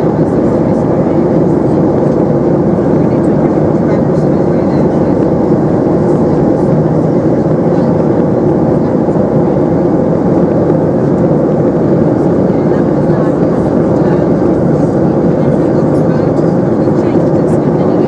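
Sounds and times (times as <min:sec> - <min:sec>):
airflow past fuselage: 0:00.0 - 0:18.0
jet engine drone in cabin: 0:00.0 - 0:18.0.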